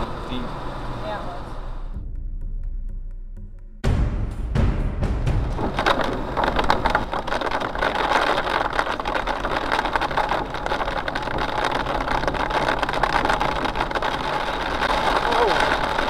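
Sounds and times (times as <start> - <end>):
moving car: 0.0 - 2.0, 5.8 - 16.0
hail pelting car body: 5.3 - 16.0.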